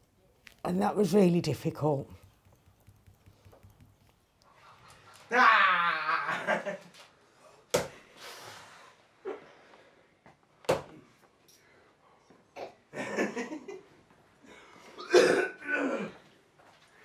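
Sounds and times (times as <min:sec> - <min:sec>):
person laughing: 0:05.3 - 0:06.9
breaths: 0:07.3 - 0:10.4, 0:11.5 - 0:12.5.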